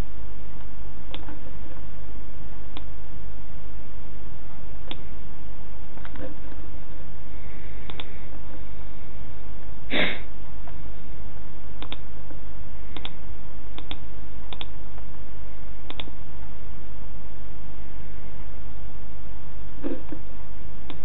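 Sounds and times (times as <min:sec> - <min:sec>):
low hum: 0:00.0 - 0:21.0
sharp double clicks: 0:07.9 - 0:08.1, 0:11.8 - 0:12.0, 0:13.0 - 0:13.2, 0:13.8 - 0:14.7, 0:15.9 - 0:16.1.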